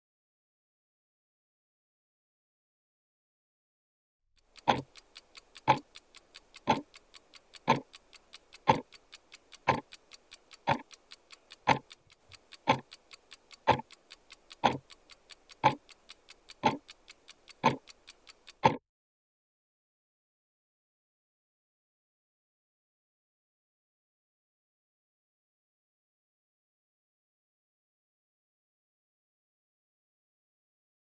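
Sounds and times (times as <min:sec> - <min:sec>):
clock ticking: 0:04.4 - 0:18.8.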